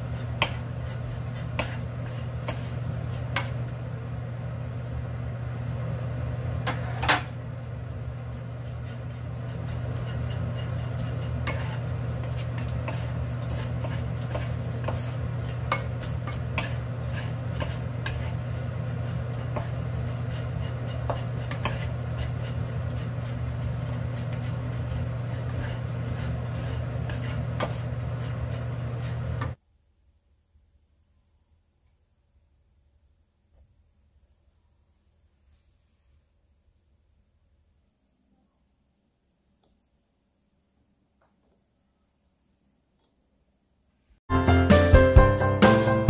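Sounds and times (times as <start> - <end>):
wooden spatula scraping a frying pan: 0.0 - 3.8, 6.7 - 7.3, 8.2 - 29.6
spatula knocking against pan: 20.9 - 22.5.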